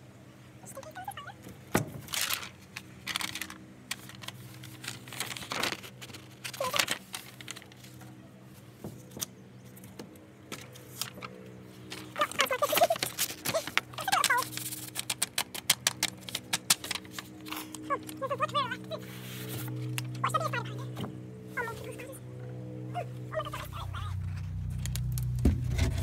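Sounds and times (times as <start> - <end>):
paper rustling and crinkling: 1.8 - 21.0.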